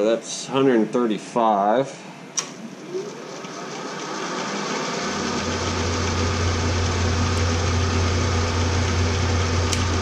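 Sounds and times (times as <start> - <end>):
milling machine humming: 2.6 - 10.0.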